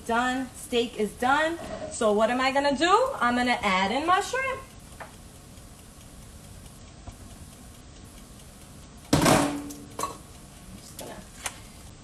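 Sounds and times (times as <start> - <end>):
quiet steady hiss: 0.0 - 12.0
knock on metal wok: 9.1 - 10.2.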